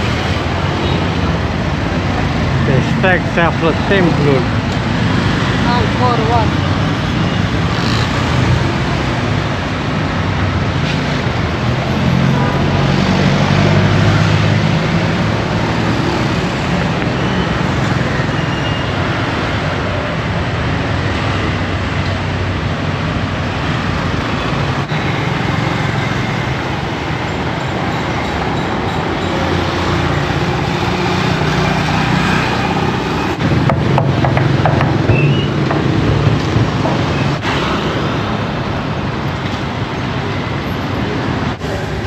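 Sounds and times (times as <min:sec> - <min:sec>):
motorbike and car engines: 0:00.0 - 0:42.0.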